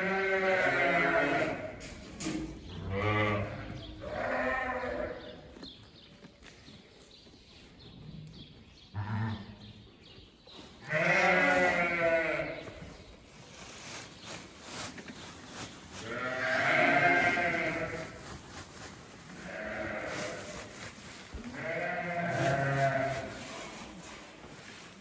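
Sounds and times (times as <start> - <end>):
sheep bleating: 10.9 - 12.6, 16.1 - 18.2, 21.4 - 23.4.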